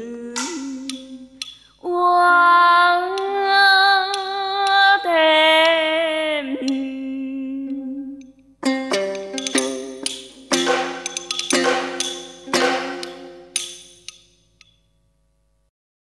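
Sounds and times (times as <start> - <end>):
woman singing with vibrato: 0.0 - 8.4, 9.5 - 11.0
sharp clicks: 4.0 - 5.0.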